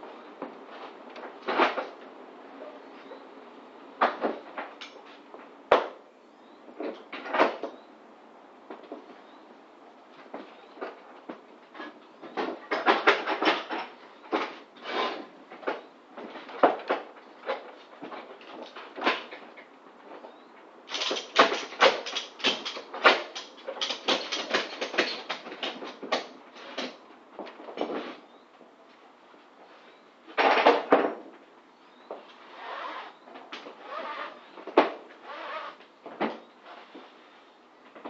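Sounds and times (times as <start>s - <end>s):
ratchet strap clicks and rattles: 20.9s - 26.2s.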